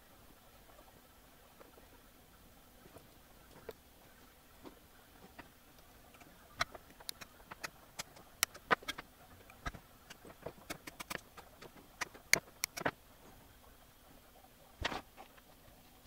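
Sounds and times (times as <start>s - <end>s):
wire cutters snipping: 12.3s - 12.9s.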